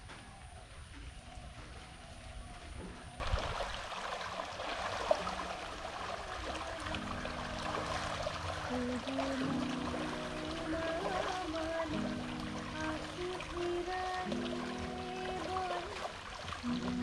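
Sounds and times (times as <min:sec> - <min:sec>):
outdoor background hiss: 0:00.0 - 0:17.0
background music with held notes: 0:05.1 - 0:17.0.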